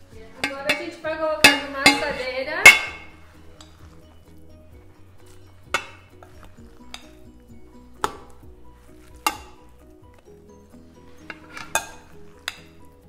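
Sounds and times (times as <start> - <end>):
quiet background music: 0.0 - 13.0
metal pan clanking on table: 0.3 - 3.8, 5.6 - 7.3, 9.1 - 9.7, 11.2 - 12.8
spoon clinking against glass bowl: 0.3 - 3.8.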